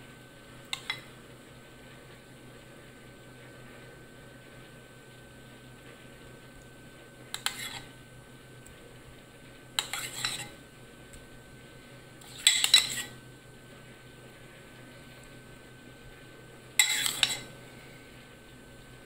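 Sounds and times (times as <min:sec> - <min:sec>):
metal spoon scraping a bowl: 0:00.7 - 0:01.1, 0:07.3 - 0:07.9, 0:09.8 - 0:10.6, 0:12.2 - 0:13.2, 0:16.8 - 0:17.6.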